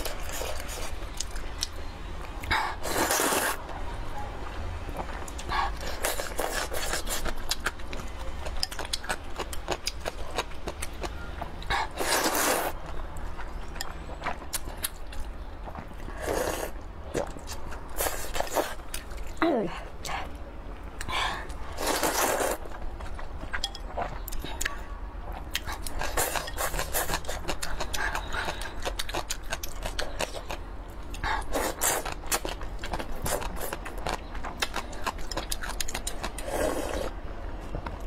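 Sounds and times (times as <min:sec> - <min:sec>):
slurping noodles: 0:02.7 - 0:03.6, 0:11.7 - 0:12.8, 0:21.8 - 0:22.6, 0:36.3 - 0:37.1
wet chewing and mouth clicks: 0:21.0 - 0:37.1.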